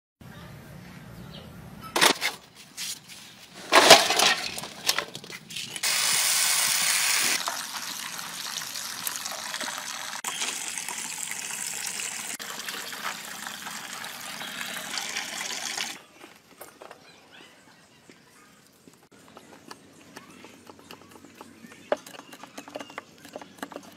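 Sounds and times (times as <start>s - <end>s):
water gushing and splashing: 5.8s - 16.0s.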